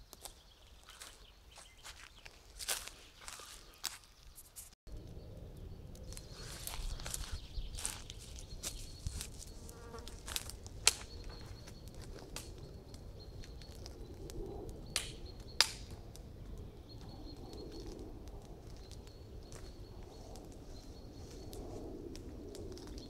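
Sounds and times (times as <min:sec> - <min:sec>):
campfire crackling and popping: 0:04.9 - 0:23.0.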